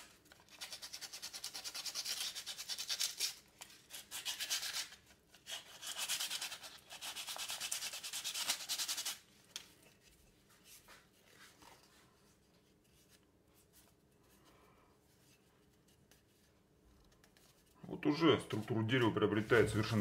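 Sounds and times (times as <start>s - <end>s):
sandpaper rubbing wood: 0.5s - 9.2s
faint handling sounds: 9.2s - 20.0s.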